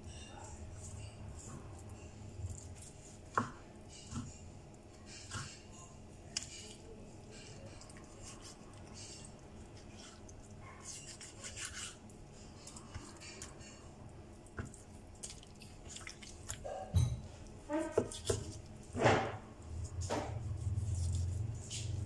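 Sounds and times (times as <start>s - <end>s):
knife cutting raw meat: 17.7s - 18.7s, 20.0s - 22.0s.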